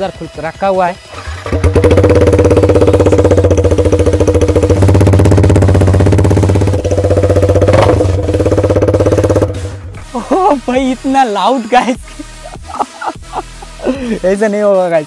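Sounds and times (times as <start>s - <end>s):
motorcycle engine running loud: 1.1s - 9.9s.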